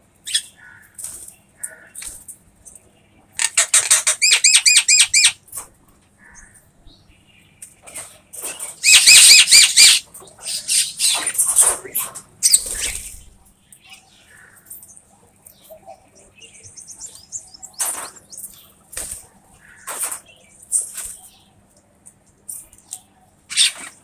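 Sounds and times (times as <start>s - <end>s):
birds' wings flapping: 18.9s - 21.2s.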